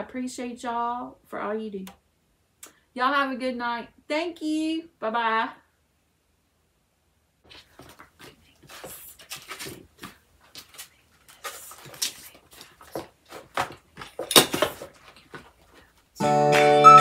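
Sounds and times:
paper and fabric rustling: 7.5 - 16.1
music: 16.2 - 17.0.

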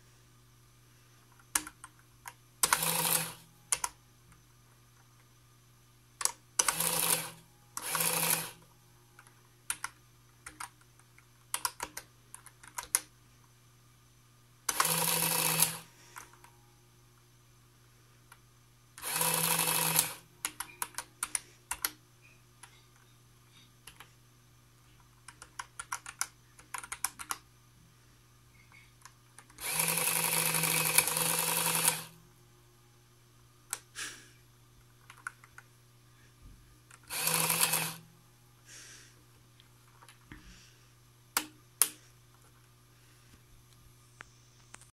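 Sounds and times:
calculator printer buzzing: 2.6 - 3.9, 6.6 - 8.7, 14.7 - 16.4, 19.0 - 21.9, 29.6 - 32.2, 37.0 - 38.0.

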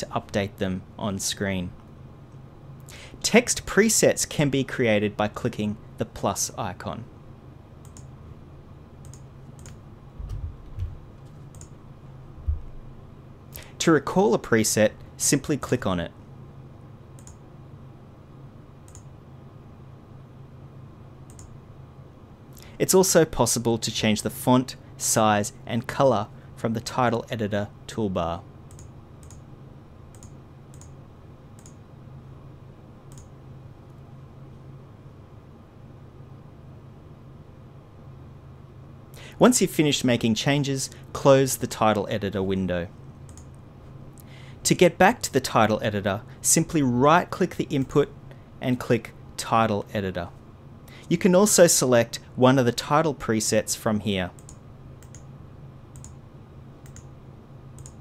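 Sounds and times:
faint low hum: 0.0 - 58.0
mouse clicks: 9.0 - 10.4, 11.5 - 11.7, 17.2 - 17.4, 21.3 - 21.5, 30.1 - 31.0, 31.6 - 31.8, 54.4 - 55.3, 55.9 - 56.2, 56.8 - 57.1, 57.8 - 58.0
dull low thumps: 10.2 - 11.1, 12.4 - 12.9.

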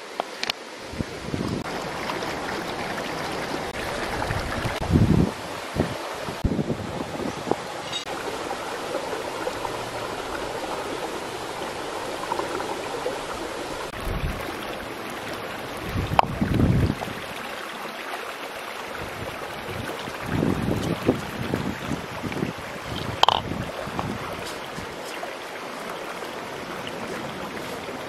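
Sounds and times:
stream flowing: 0.0 - 28.0
wind gusts on microphone: 0.8 - 14.9, 15.5 - 17.4, 18.9 - 25.0.

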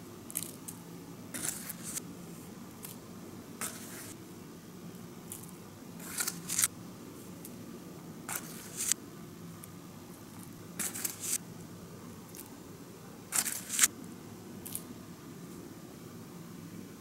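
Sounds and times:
spoon scraping powder: 1.3 - 2.0, 3.6 - 4.2, 6.0 - 6.7, 8.3 - 9.0, 10.8 - 11.4, 13.3 - 13.9.

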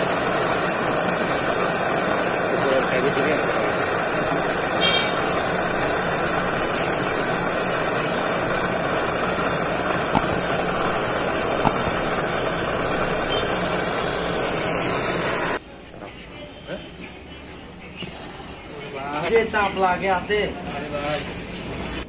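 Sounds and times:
torch flame burning: 0.0 - 15.6.

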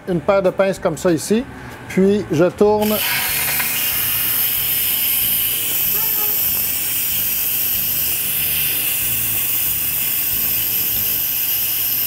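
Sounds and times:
pressure cooker venting steam hiss: 2.8 - 12.0.

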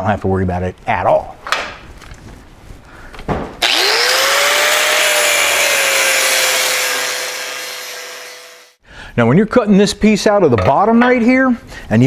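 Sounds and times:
angle grinder cutting steel: 3.6 - 8.8.

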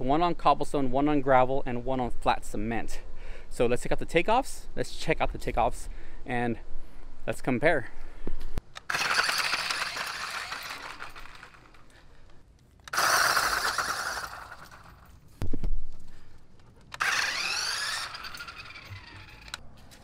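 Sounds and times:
toy car motor and gear whine: 8.8 - 11.9, 12.9 - 15.1, 17.0 - 19.6.

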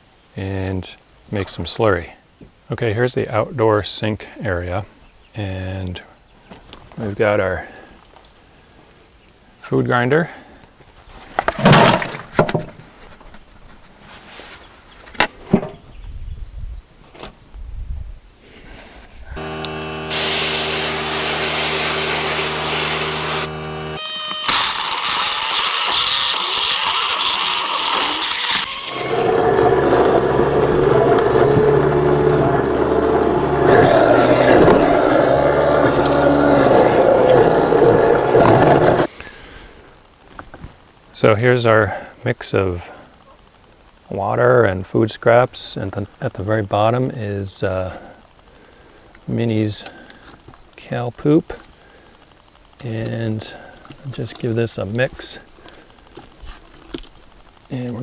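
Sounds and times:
food grinder motor humming: 19.4 - 39.1.

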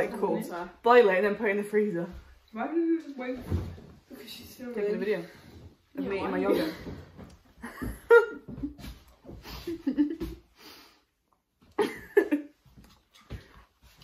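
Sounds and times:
young women giggling: 7.6 - 10.4, 11.7 - 12.6.

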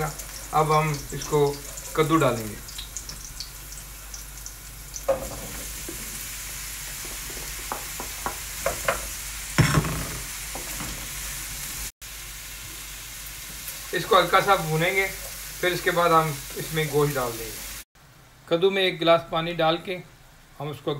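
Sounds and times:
pumpkin sizzling in hot oil: 0.0 - 17.9
loud knock: 9.6 - 10.3.

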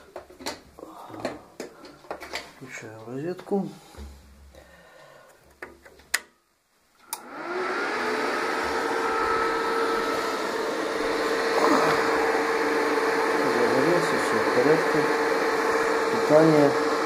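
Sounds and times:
cooling fan spinning up: 7.0 - 17.0.

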